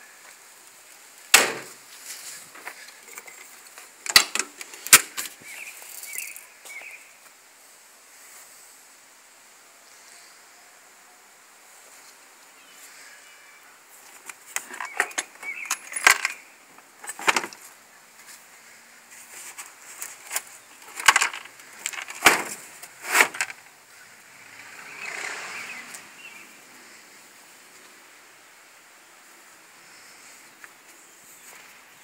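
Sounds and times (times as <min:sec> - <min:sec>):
plastic tool case latches clicking: 0:04.1 - 0:05.1, 0:20.3 - 0:23.6.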